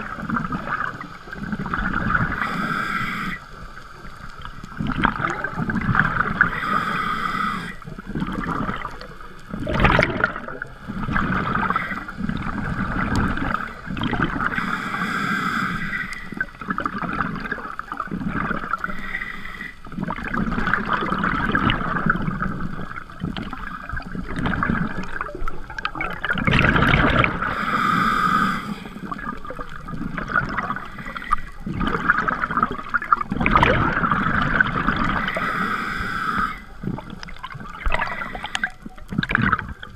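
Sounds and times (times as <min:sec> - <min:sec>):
exhaled bubbles gurgling: 0:00.0 - 0:39.9
regulator hiss: 0:02.3 - 0:04.3, 0:06.4 - 0:08.0, 0:14.5 - 0:16.5, 0:27.5 - 0:29.1, 0:35.2 - 0:36.8.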